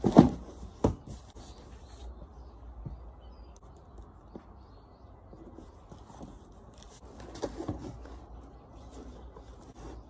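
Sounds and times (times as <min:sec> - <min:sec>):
cardboard box scraping and knocking: 0:00.0 - 0:01.6, 0:05.5 - 0:10.0.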